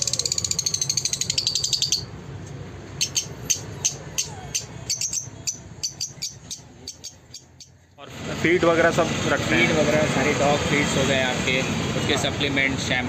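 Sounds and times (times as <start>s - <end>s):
lovebirds twittering and chirping: 0.0s - 2.2s, 2.9s - 8.0s.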